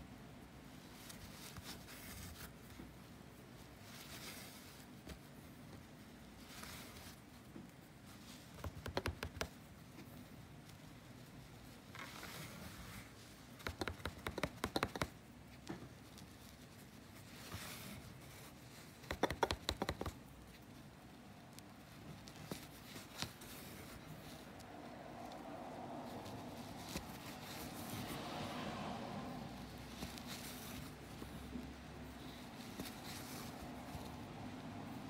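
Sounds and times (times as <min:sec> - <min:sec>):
needle clicking against threads: 0:08.5 - 0:09.6, 0:13.5 - 0:15.2, 0:18.9 - 0:20.4.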